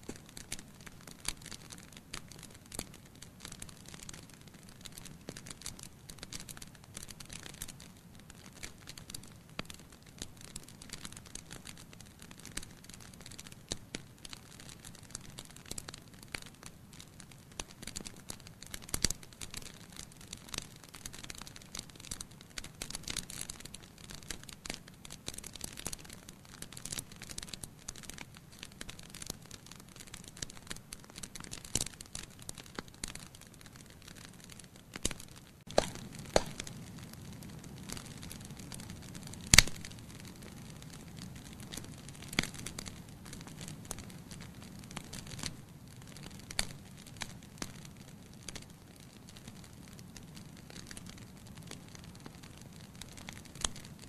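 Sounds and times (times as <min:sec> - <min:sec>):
fire crackling and popping: 0:00.0 - 0:54.0.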